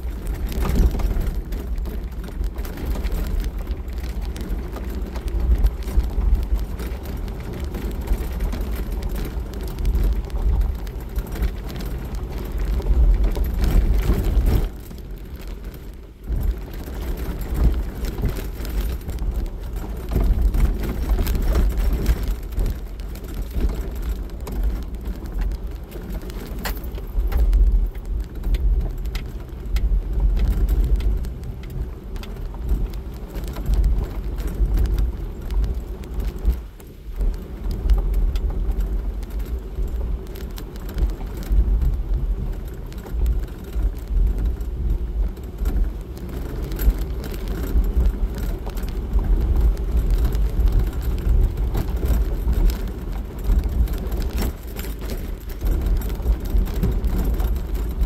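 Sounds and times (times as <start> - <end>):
tyres crunching over gravel: 0.0 - 58.0.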